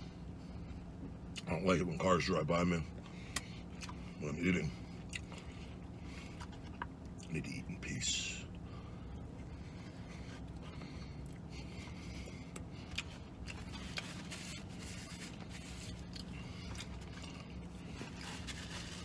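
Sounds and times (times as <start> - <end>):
low steady hum: 0.0 - 19.0
person chewing: 2.9 - 4.2, 4.8 - 7.3, 9.1 - 19.0.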